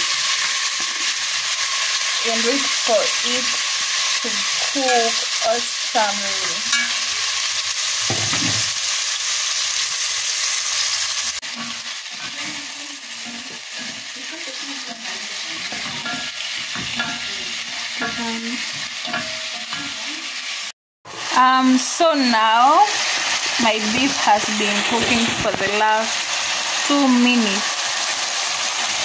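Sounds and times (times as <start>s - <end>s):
meat sizzling in a frying pan: 0.0s - 29.0s
spatula stirring in pan: 2.8s - 8.3s, 10.3s - 20.5s.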